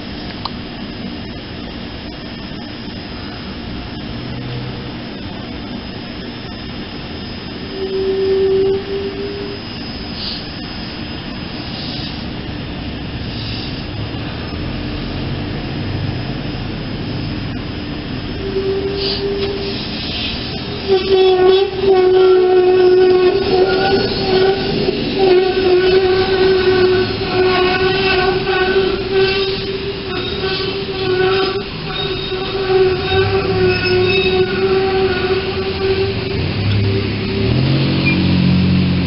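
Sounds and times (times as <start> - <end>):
trolley hum and rumble: 0.0 - 39.0
trolley horn blast: 7.5 - 10.4, 18.2 - 39.0.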